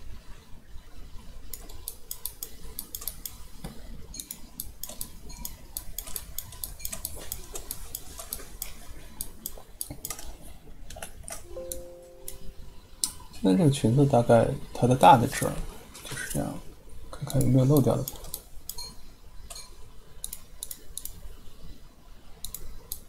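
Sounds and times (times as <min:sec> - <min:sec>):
low steady hum: 0:00.0 - 0:23.0
computer mouse and keyboard clicking: 0:01.5 - 0:11.4, 0:17.2 - 0:18.9, 0:19.5 - 0:21.2, 0:22.4 - 0:23.0.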